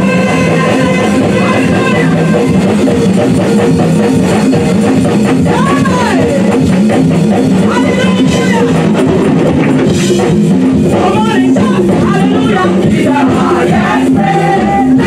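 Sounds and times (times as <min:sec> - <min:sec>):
drum kit: 0:00.0 - 0:15.0
electric guitar: 0:00.0 - 0:15.0
choir singing: 0:11.8 - 0:15.0.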